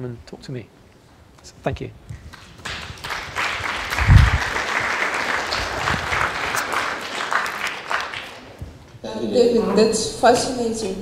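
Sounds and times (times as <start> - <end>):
audience applauding: 2.2 - 8.6.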